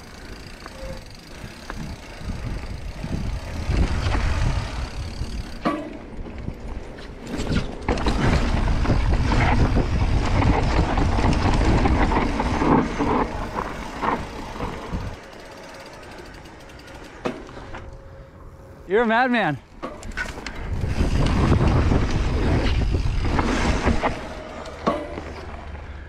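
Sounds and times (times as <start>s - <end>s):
bike rattling over bumps: 0.0s - 18.8s, 19.6s - 26.0s
wind rushing over microphone: 1.7s - 5.6s, 7.5s - 15.2s, 20.5s - 24.6s.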